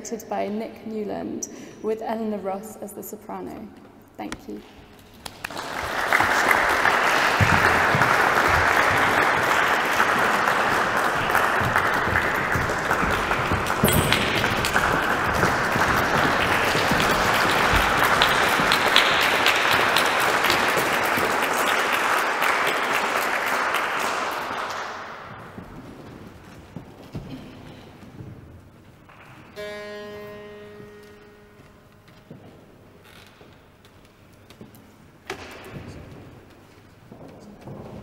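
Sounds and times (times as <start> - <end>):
audience applauding: 5.1 - 26.8.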